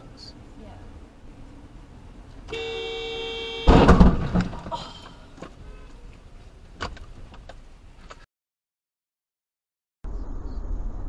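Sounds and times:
car horn blast: 0:02.5 - 0:04.1
loud thump and rattle: 0:03.7 - 0:04.8.

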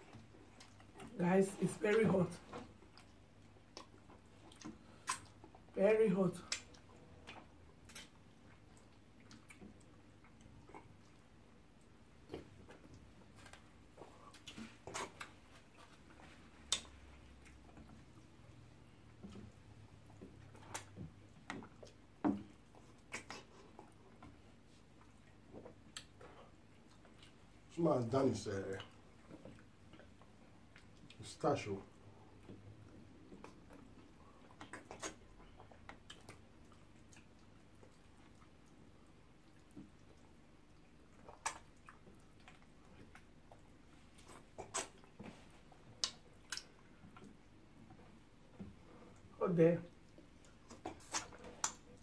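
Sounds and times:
chewing: 0:00.0 - 0:01.2, 0:02.4 - 0:05.7, 0:06.5 - 0:27.7, 0:28.7 - 0:31.3, 0:32.1 - 0:52.0
wet eating smacks: 0:02.4 - 0:05.7, 0:06.4 - 0:27.7, 0:32.3 - 0:49.3, 0:49.9 - 0:52.0
wet mouth smacks: 0:03.7 - 0:05.4, 0:06.5 - 0:09.8, 0:16.7 - 0:17.0, 0:22.9 - 0:23.9, 0:34.5 - 0:36.4, 0:41.2 - 0:43.3, 0:44.2 - 0:45.2, 0:46.0 - 0:47.3, 0:50.7 - 0:51.9
fingers being licked: 0:06.4 - 0:10.9, 0:16.6 - 0:17.6, 0:22.8 - 0:24.0, 0:34.5 - 0:38.8, 0:40.8 - 0:43.6, 0:44.2 - 0:45.2, 0:46.0 - 0:47.4, 0:50.1 - 0:52.0.

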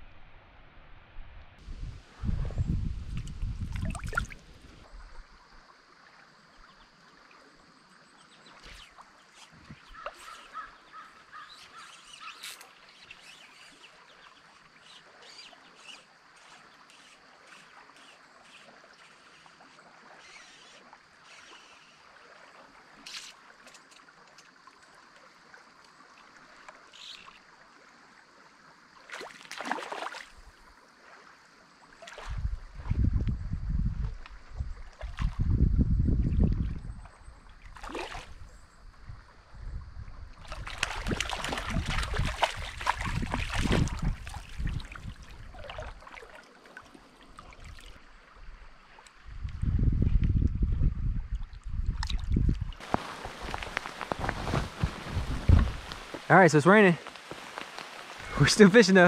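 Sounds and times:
stream water running: 0:01.6 - 0:59.0
bird calls: 0:08.2 - 0:18.7.

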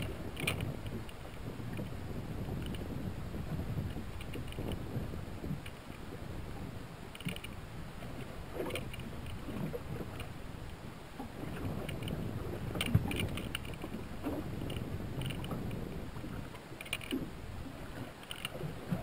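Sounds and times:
water slapping against boat hull: 0:00.0 - 0:10.5, 0:11.2 - 0:19.0
light wind: 0:00.0 - 0:19.0.

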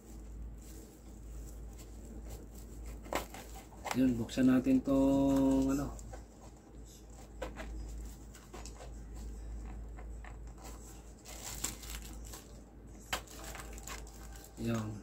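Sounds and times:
plastic wrapping crinkling and tearing: 0:11.2 - 0:15.0.

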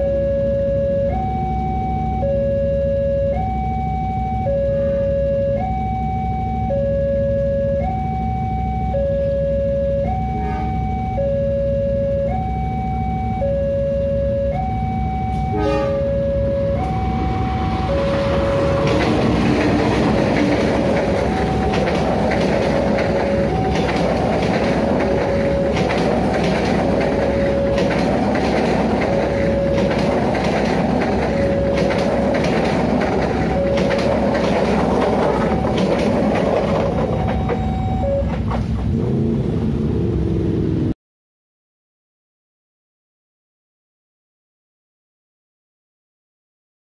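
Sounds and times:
two-tone level-crossing alarm: 0:00.0 - 0:39.0
train wheels rumbling on rails: 0:14.6 - 0:40.9.

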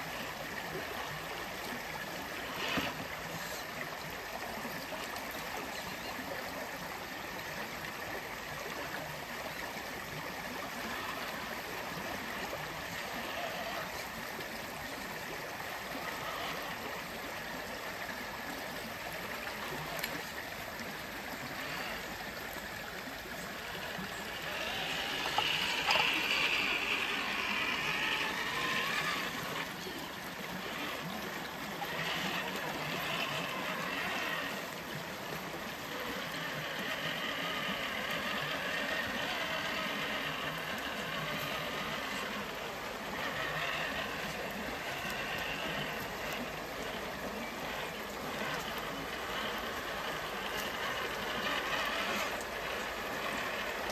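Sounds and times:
creek water trickling over rocks: 0:00.0 - 0:53.9.

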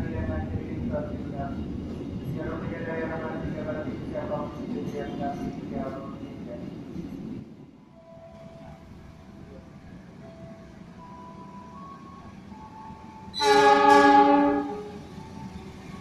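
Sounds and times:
locomotive horn blast: 0:13.3 - 0:15.0.

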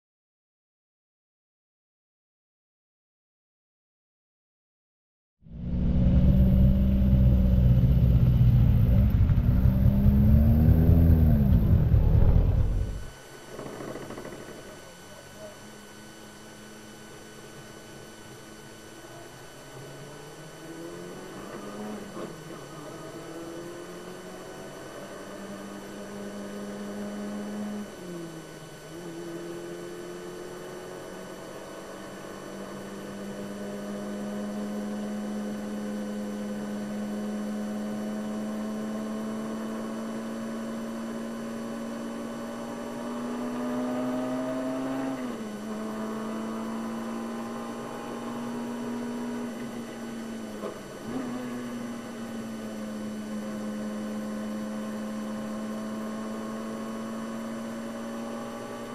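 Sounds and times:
race car engine revving: 0:05.5 - 0:13.1, 0:28.9 - 0:58.9.

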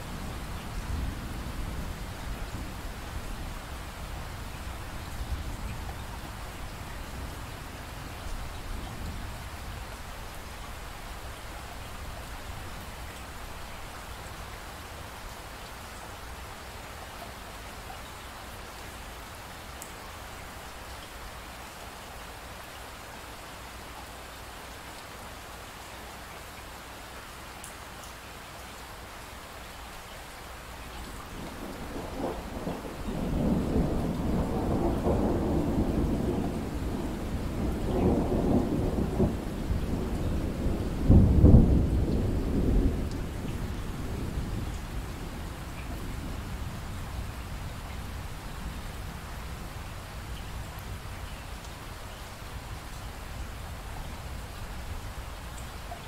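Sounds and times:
steady rain falling: 0:00.0 - 0:56.0
thunder rumbling: 0:31.3 - 0:47.9.

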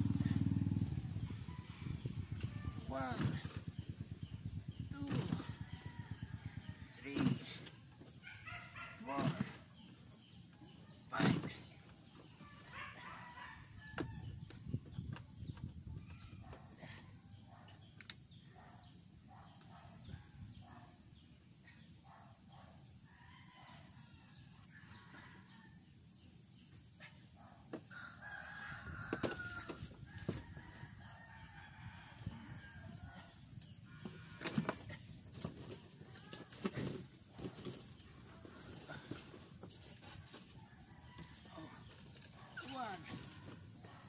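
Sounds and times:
rooster crowing: 0:27.9 - 0:33.3.

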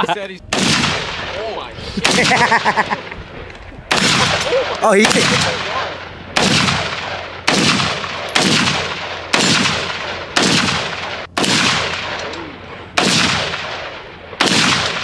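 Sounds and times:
rifle shots echoing: 0:00.5 - 0:03.0, 0:03.9 - 0:15.0.

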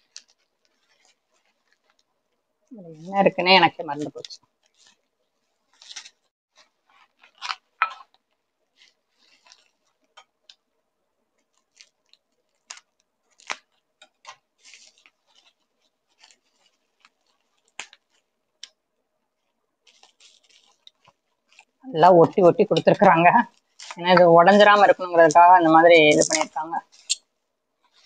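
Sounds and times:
plastic crinkling: 0:00.0 - 0:28.0
scissors snipping bubble wrap: 0:05.7 - 0:06.2, 0:07.0 - 0:08.2, 0:11.4 - 0:18.8, 0:19.9 - 0:25.6.

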